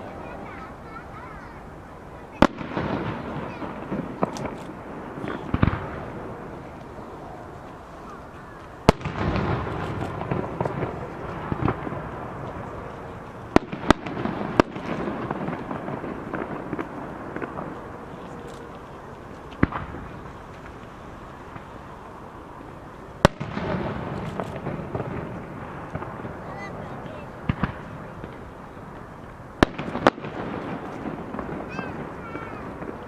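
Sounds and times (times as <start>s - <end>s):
fireworks bursting with bangs: 0.0s - 33.0s.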